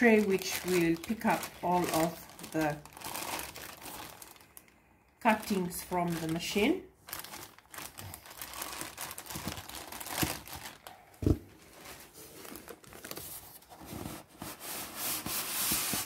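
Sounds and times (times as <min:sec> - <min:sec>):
plastic bag crinkling: 0:00.0 - 0:13.4.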